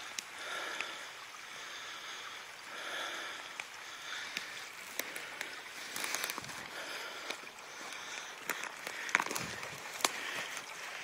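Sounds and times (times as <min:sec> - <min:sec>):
twigs snapping: 0:04.3 - 0:06.6, 0:07.2 - 0:10.7
footsteps through wet leaves: 0:04.8 - 0:11.0.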